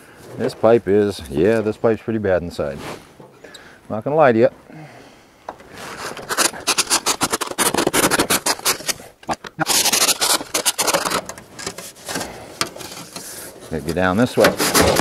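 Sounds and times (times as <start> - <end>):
chimney brush scraping in pipe: 5.7 - 15.0.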